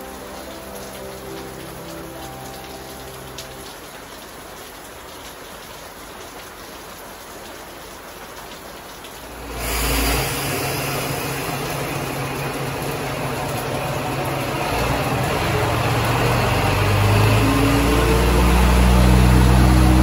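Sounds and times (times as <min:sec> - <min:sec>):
steady rain falling: 0:00.0 - 0:20.0
diesel railcar engine idling: 0:09.7 - 0:20.0.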